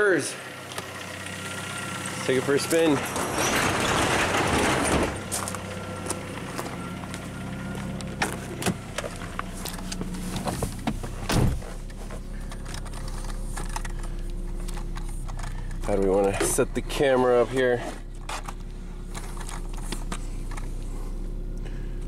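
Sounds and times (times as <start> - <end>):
car engine idling: 0.0 - 22.0
car door shutting: 7.8 - 21.0.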